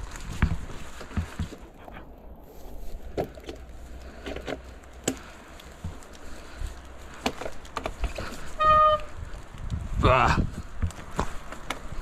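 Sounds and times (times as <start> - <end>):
bike knocking on rocks: 0.0 - 1.8, 3.0 - 6.1, 7.1 - 9.1, 10.6 - 12.0
bike tyres crunching over stones: 0.0 - 12.0
low rumble: 1.6 - 10.8.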